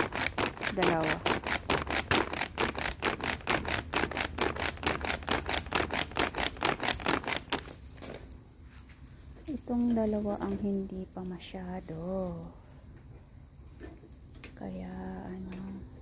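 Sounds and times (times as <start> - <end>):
fan swishing: 0.0 - 11.0.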